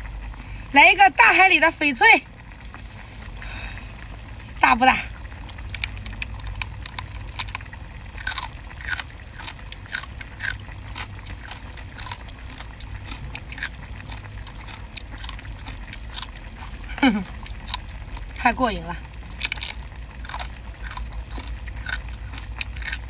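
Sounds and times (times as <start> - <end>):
low hum: 0.0 - 23.0
crunchy chewing: 5.5 - 23.0.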